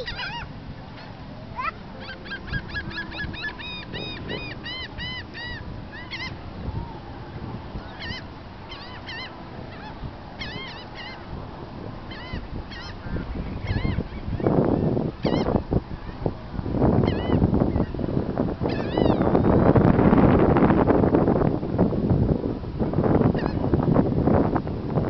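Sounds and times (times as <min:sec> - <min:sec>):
gulls calling: 0:00.0 - 0:16.4, 0:17.0 - 0:19.8.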